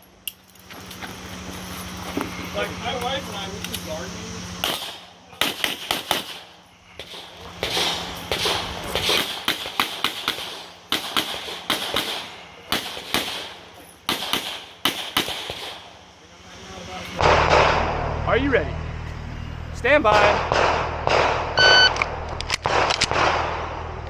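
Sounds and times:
rapid pistol shots: 4.6s - 15.9s, 17.2s - 18.0s, 20.1s - 21.6s, 22.6s - 23.9s.

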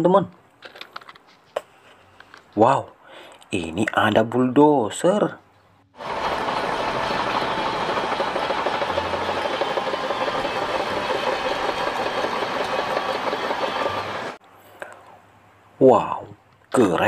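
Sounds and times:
bulldozer diesel engine running: 6.0s - 14.4s
steel tracks clattering: 6.0s - 14.4s.

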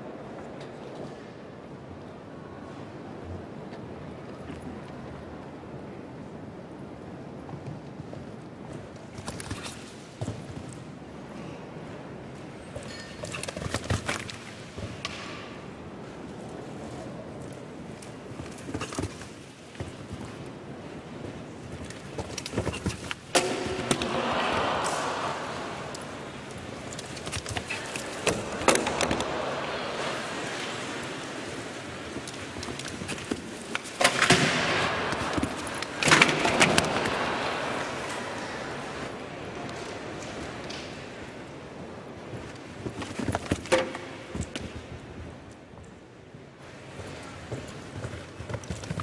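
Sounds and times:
steady background noise: 0.0s - 49.0s
horse hoofbeats on sand: 18.1s - 23.8s, 46.9s - 49.0s
crowd reaction: 23.6s - 26.8s, 28.2s - 31.1s.

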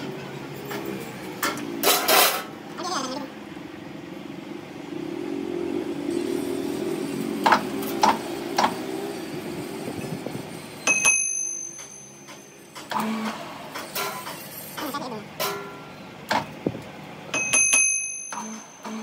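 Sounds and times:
high metallic ring: 10.8s - 12.9s, 17.3s - 19.0s.

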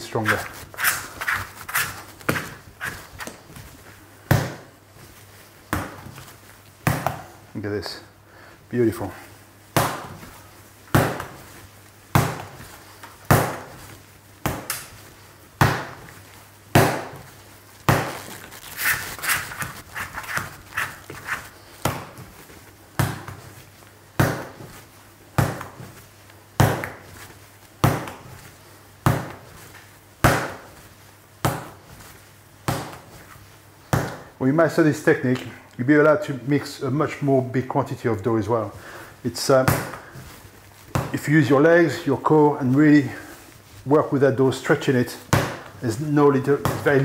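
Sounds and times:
sticky dough crackles: 0.0s - 8.1s, 8.7s - 47.0s
dough slapped on wooden bench: 9.7s - 10.3s, 15.6s - 16.0s, 16.7s - 17.3s, 30.2s - 30.8s.

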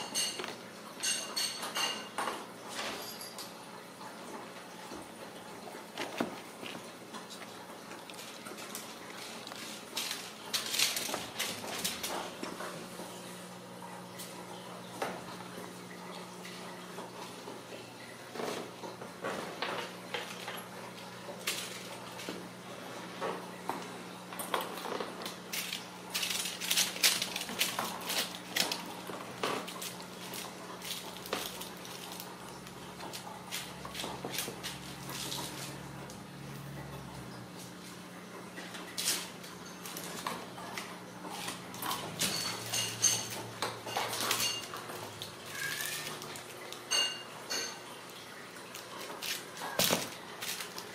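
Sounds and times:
kittens batting toy on tile: 25.5s - 32.4s, 41.4s - 47.0s.

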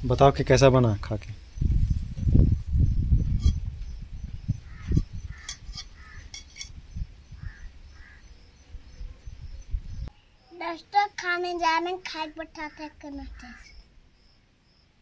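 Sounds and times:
distant bird calls: 1.4s - 10.7s, 12.4s - 15.0s.

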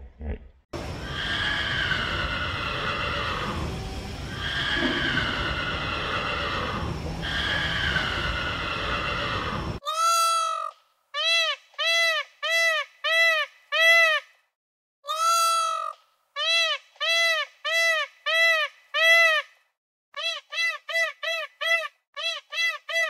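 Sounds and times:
short rising and falling animal calls: 0.8s - 10.3s
animal call falling in pitch: 4.3s - 9.7s.

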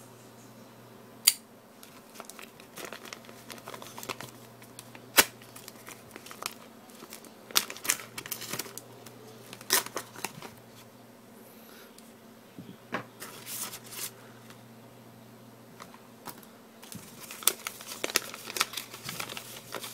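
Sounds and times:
envelope tearing: 1.8s - 8.8s, 9.4s - 10.6s, 16.3s - 19.9s
envelope crinkling and rustling: 1.8s - 10.9s, 15.8s - 19.9s.

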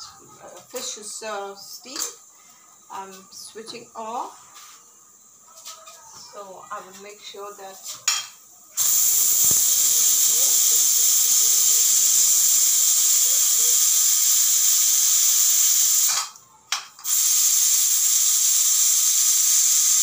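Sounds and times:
steam hissing from pressure cooker: 8.8s - 16.4s, 17.0s - 20.0s.

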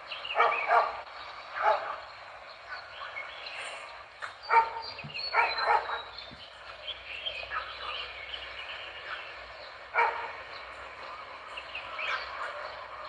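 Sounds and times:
dog barking: 0.4s - 1.0s, 1.6s - 2.0s, 4.5s - 6.1s, 10.0s - 10.4s.

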